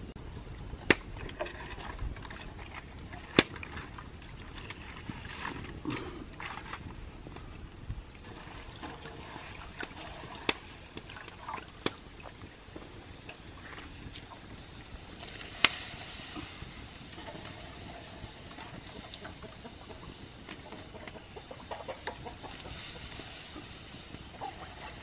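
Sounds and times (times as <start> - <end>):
faint steady high hiss: 0.0 - 25.0
water sloshing in a metal basin: 1.2 - 6.9, 8.2 - 12.5
wood fire crackling: 2.4 - 25.0.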